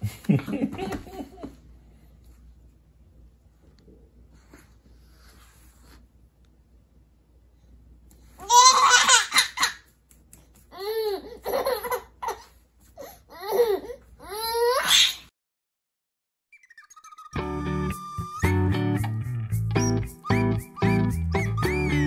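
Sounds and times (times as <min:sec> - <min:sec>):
baby giggling: 0:08.4 - 0:09.9, 0:10.7 - 0:12.6.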